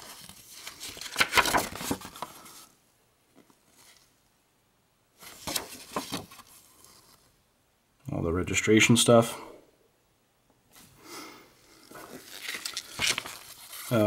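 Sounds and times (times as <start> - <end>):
paper rustling and crackling: 0.0 - 2.7, 5.2 - 7.3, 11.8 - 14.0.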